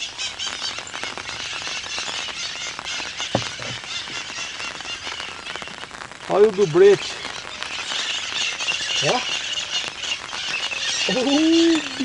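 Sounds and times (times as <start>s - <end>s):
steady rain hiss: 0.0s - 12.0s.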